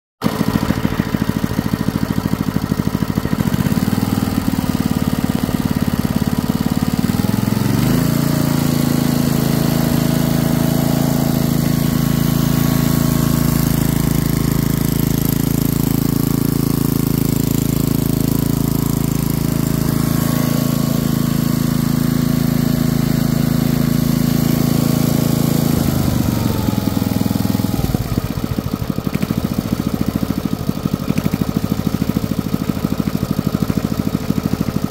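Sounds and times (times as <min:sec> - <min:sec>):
small engine running: 0:00.2 - 0:34.9.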